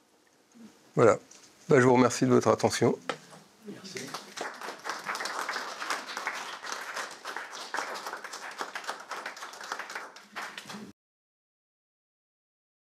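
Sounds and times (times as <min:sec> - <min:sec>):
audience applauding: 0:03.9 - 0:10.9.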